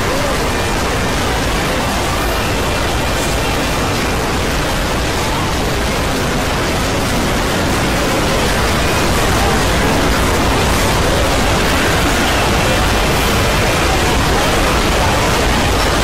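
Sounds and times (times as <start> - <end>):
faint music: 0.0 - 16.0
faint voices: 0.0 - 16.0
hiss-like roar of layered audio: 0.0 - 16.0.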